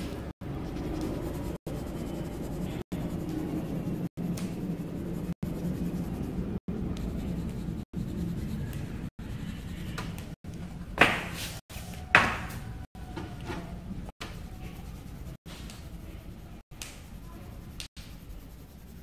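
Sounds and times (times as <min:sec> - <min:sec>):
pencil scratching on paper: 0:00.0 - 0:10.4, 0:14.2 - 0:19.0.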